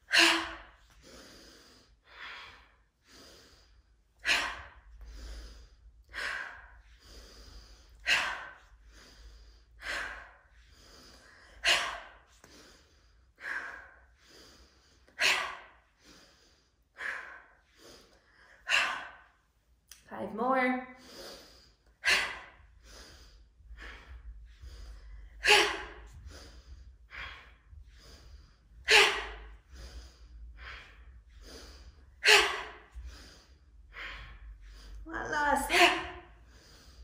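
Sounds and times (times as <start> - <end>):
woman breathing deeply: 0.0 - 19.8, 20.9 - 37.0.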